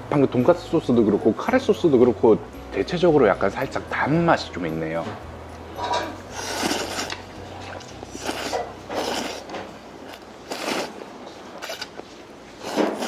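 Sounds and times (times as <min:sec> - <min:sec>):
person slurping noodles: 0:06.3 - 0:13.0.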